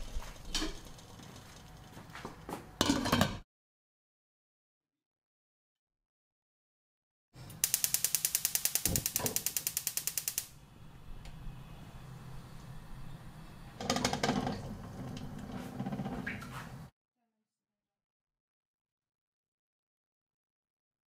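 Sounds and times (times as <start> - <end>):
rapid mechanical clicking: 7.6 - 10.5.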